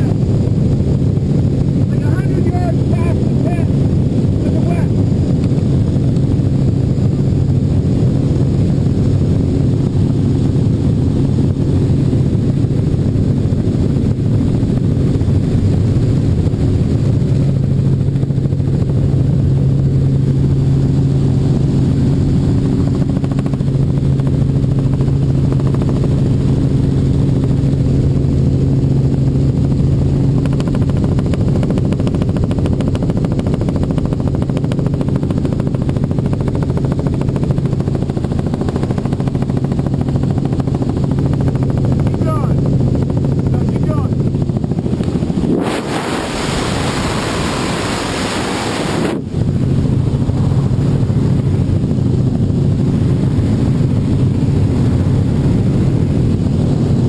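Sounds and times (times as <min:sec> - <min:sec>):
helicopter cabin drone: 0:00.0 - 0:57.0
rough rushing noise: 0:44.6 - 0:51.8.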